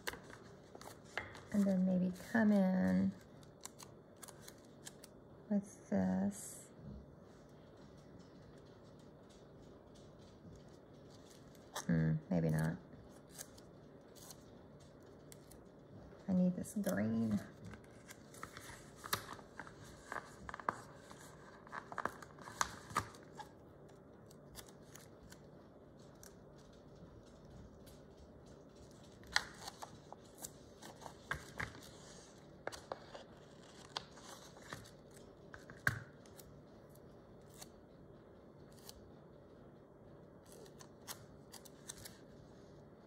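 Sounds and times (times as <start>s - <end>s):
paper rustling: 0.0s - 2.3s, 16.8s - 23.6s, 28.8s - 36.4s.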